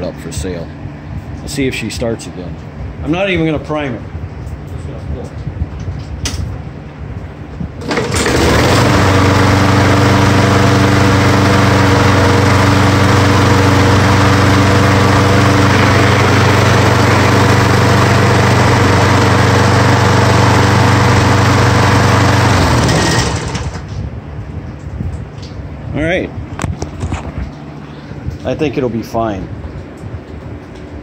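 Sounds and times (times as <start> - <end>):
lawn mower engine running: 7.8 - 24.0.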